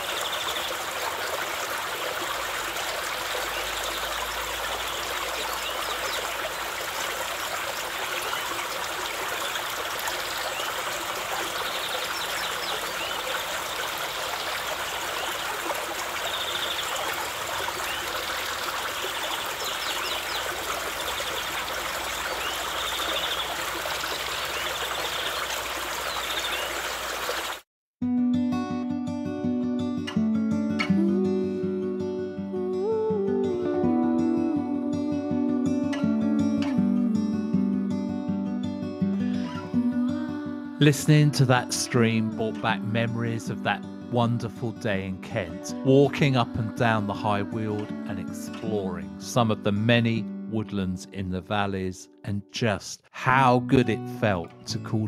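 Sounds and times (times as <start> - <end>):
stream flowing: 0.0 - 27.6.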